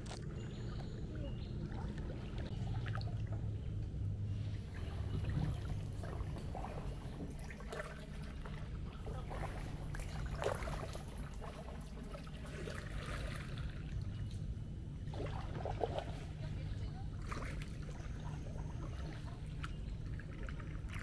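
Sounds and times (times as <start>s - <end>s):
steady low rumble: 0.0s - 21.0s
water trickling off paddle blade: 0.0s - 21.0s
short splashes: 4.3s - 14.4s
kayak paddle dipping into water: 4.5s - 14.4s, 15.0s - 21.0s.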